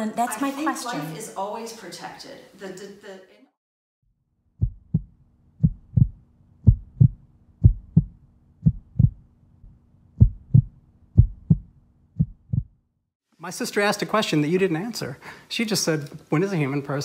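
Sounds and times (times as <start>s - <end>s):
heartbeat thumps: 4.6s - 12.8s.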